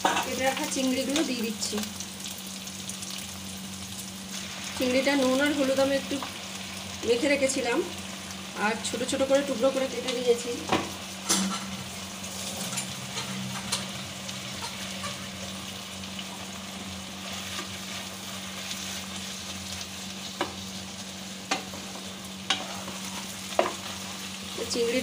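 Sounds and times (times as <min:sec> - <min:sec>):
food sizzling in oil: 0:00.0 - 0:25.0
spatula stirring in wok: 0:17.1 - 0:24.5
spatula knocking on pan: 0:23.6 - 0:23.8.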